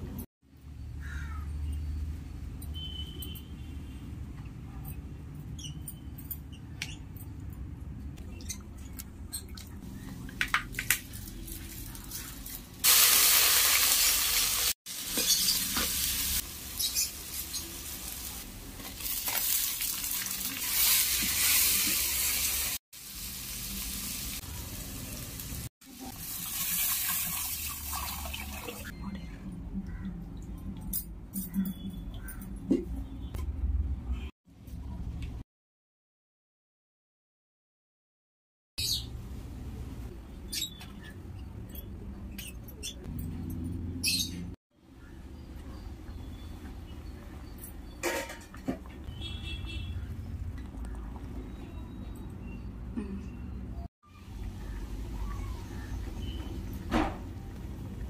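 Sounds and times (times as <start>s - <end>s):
onions sizzling in hot oil: 11.8s - 28.2s.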